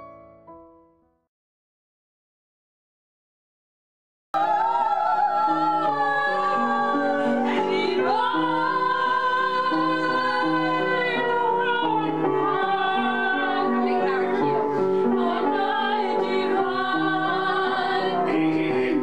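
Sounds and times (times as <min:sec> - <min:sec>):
piano accompaniment: 0:00.0 - 0:01.1, 0:04.4 - 0:19.0
women singing: 0:04.4 - 0:19.0.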